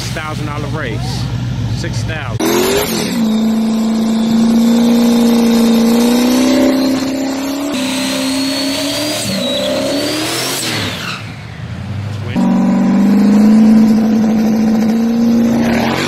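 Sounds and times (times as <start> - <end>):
truck engine revving: 0.0 - 16.0
turbo whistle rising: 2.5 - 11.2.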